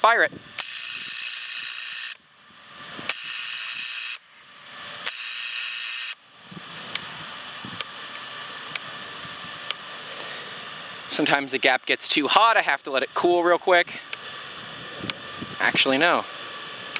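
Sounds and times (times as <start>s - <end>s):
tesla coil hissing: 0.0s - 16.9s
sharp electric snaps: 0.5s - 2.3s, 3.1s - 4.3s, 5.0s - 6.3s.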